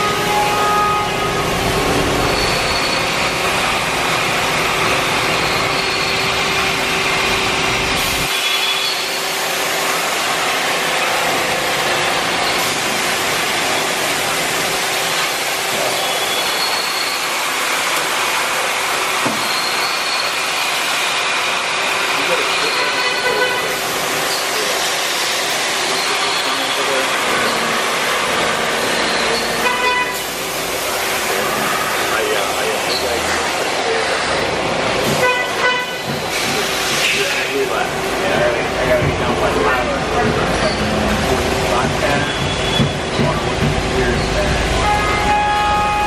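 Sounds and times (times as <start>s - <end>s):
lathe running with held tone: 0.0s - 35.0s.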